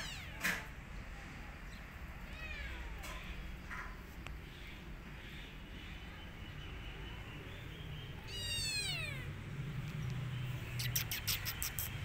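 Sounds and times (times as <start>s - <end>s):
kitten meowing: 0.0s - 0.4s, 8.2s - 9.4s
sharp high ticks: 10.8s - 12.0s.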